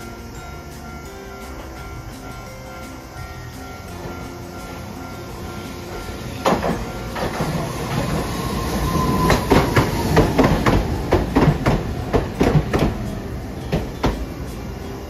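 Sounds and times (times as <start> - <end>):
tram wheels clacking over rail joints: 3.7 - 15.0.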